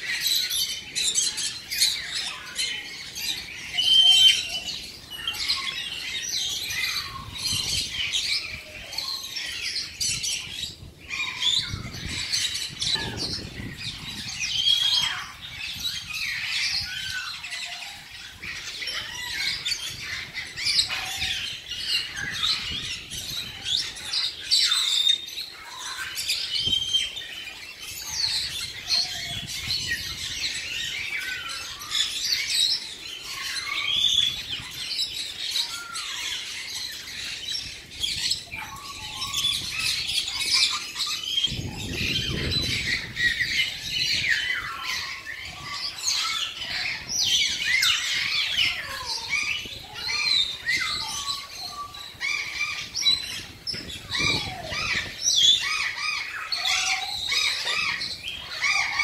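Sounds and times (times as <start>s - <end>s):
parrots squawking and chirping: 0.0s - 59.0s.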